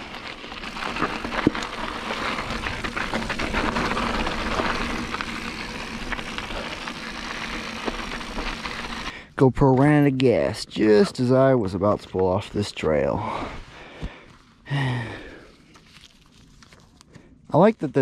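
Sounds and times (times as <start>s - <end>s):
bike clicks and rattles: 0.0s - 9.1s
tyres crunching on gravel: 0.0s - 14.2s.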